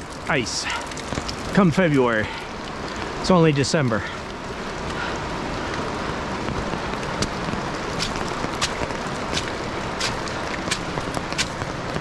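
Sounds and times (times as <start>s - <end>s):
footsteps on wet rocky trail: 4.8s - 12.0s.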